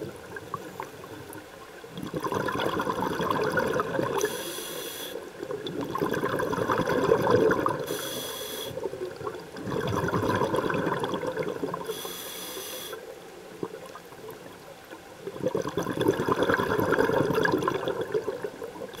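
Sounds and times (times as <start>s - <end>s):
bubbling exhaust: 2.0s - 4.2s, 5.7s - 7.8s, 9.2s - 11.8s, 15.3s - 18.4s
hissing regulator inhales: 4.2s - 5.2s, 7.8s - 8.9s, 11.8s - 13.0s.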